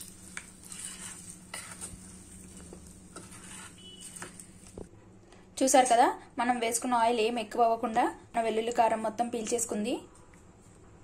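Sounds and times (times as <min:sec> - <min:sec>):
spoon scraping in steel bowl: 0:00.0 - 0:04.7.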